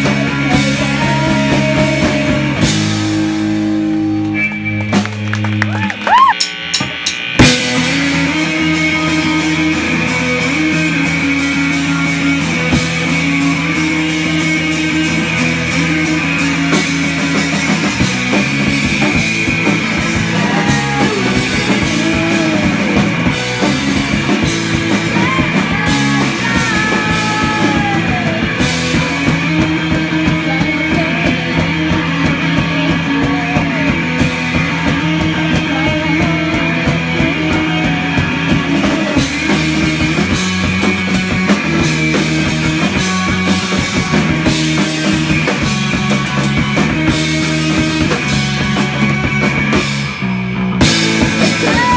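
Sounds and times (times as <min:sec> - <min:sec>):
woman singing: 0:00.0 - 0:02.8, 0:25.2 - 0:28.4
punk rock band playing: 0:00.0 - 0:51.9.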